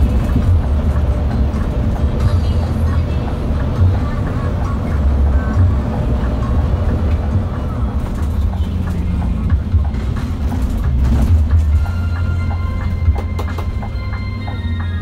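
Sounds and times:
bus engine and road rumble: 0.0s - 15.0s
melodic music: 11.7s - 15.0s.

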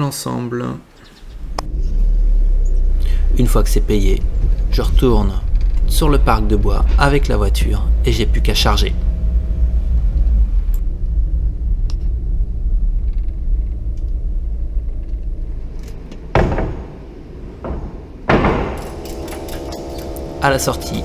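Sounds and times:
van engine and road rumble: 1.1s - 21.0s
timber boards knocking: 16.3s - 19.5s.

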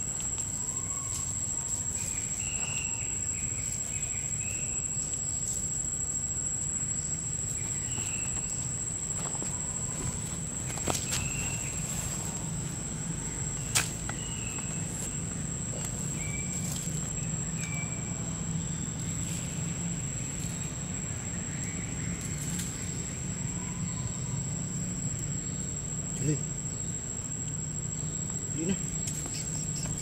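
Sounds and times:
high-pitched insect drone: 0.0s - 30.0s.

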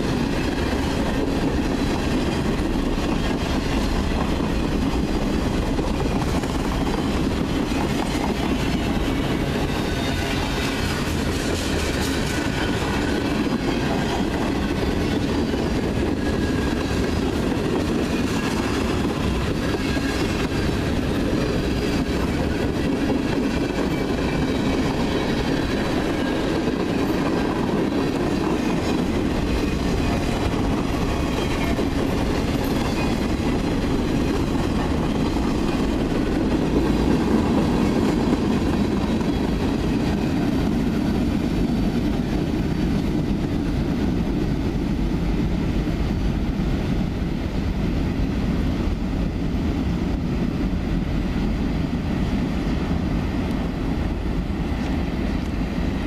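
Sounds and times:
freight train rolling past: 0.0s - 56.0s.

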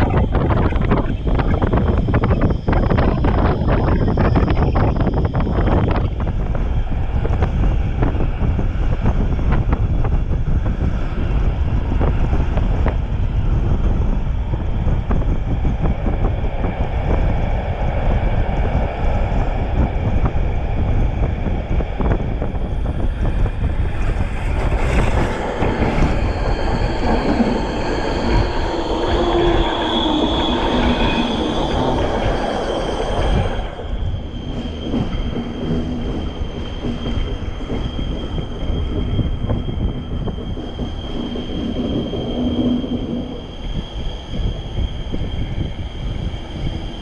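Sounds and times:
passing train: 0.0s - 47.0s
train wheels rumbling on rails: 0.0s - 47.0s
high-pitched wheel squeal: 22.5s - 47.0s.

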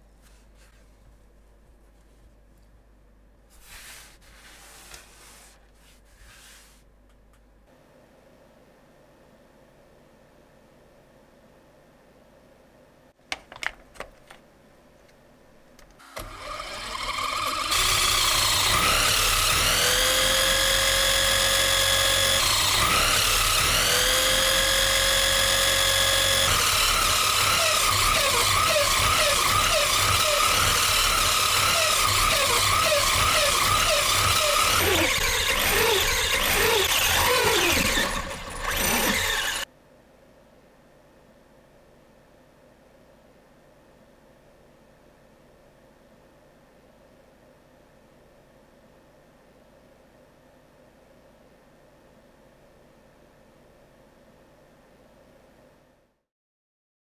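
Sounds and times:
electric motor whining: 16.2s - 39.6s.

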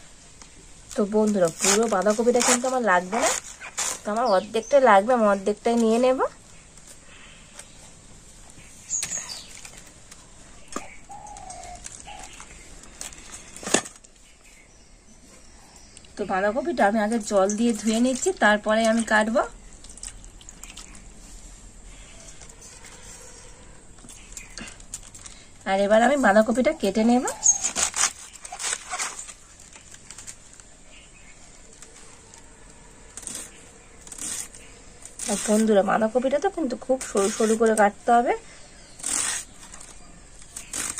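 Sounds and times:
blade slicing cabbage: 33.2s - 35.8s, 39.0s - 40.9s.

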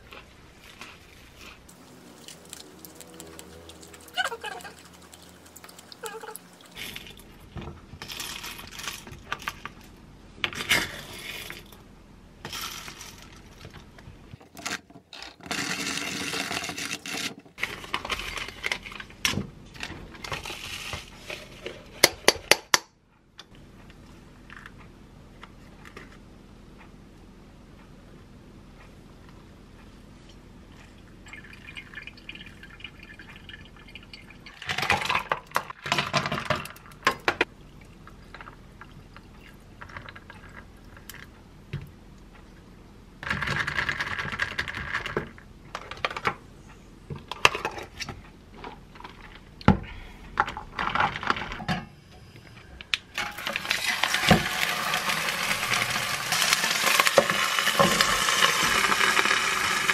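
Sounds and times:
water trickling from kettle: 31.3s - 34.6s
ice cubes clinking in cup: 53.2s - 59.9s
fish sizzling in frying pan: 53.8s - 59.9s.

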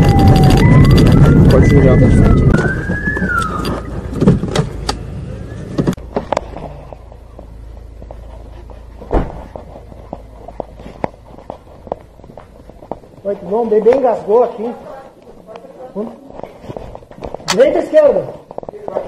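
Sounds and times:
siren wailing: 0.0s - 4.2s
car cabin noise: 0.0s - 10.7s
clicks and knocks of footsteps: 5.8s - 19.0s.

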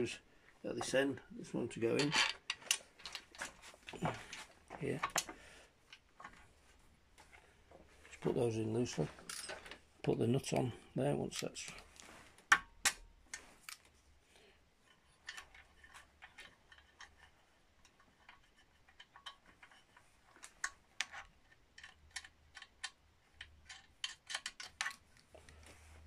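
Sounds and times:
small screws clicking metallically: 20.6s - 25.0s.

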